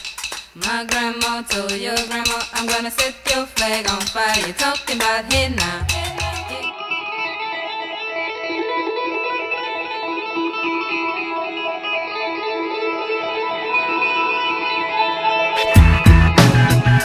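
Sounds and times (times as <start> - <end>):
guitar playing ringing notes: 5.3 - 17.0.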